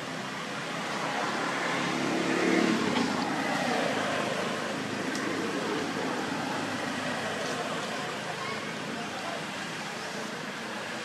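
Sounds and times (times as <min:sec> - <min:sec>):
vehicle passing: 0:00.7 - 0:07.8.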